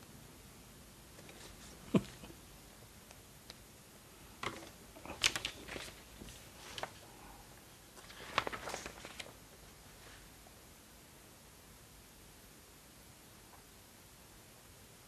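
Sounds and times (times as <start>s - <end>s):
paper rustling: 4.4s - 7.2s, 7.9s - 9.4s.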